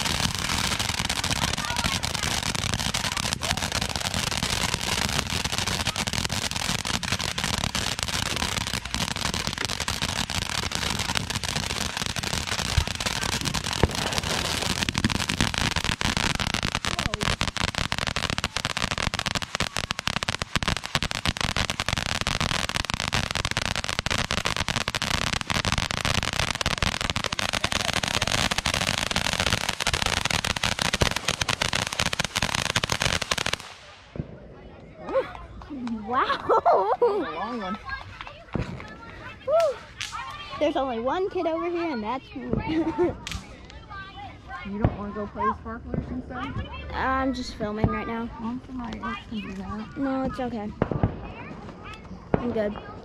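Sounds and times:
sharp firework bangs: 0.0 - 34.4, 50.3 - 53.0
fireworks crackling and popping: 0.0 - 53.0.

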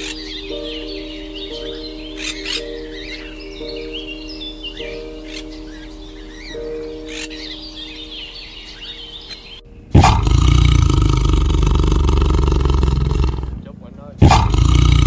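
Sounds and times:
held music chord: 0.0 - 15.0
small birds chirping: 0.0 - 15.0
tiger roaring: 9.9 - 13.6, 14.2 - 15.0.

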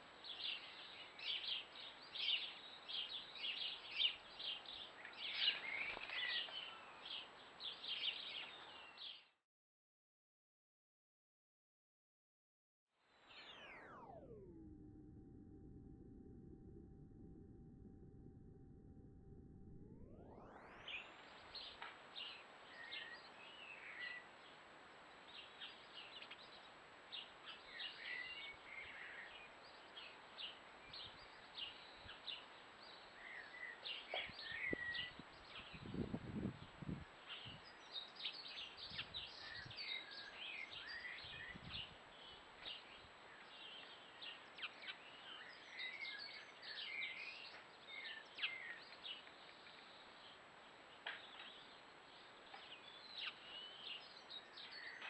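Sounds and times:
songbirds chirping and singing: 0.2 - 9.3, 20.6 - 55.0.

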